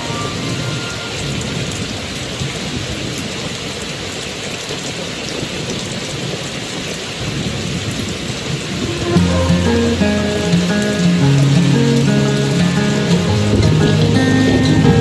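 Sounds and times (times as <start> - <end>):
rain falling: 0.0 - 15.0
thunder rumbling: 7.4 - 15.0.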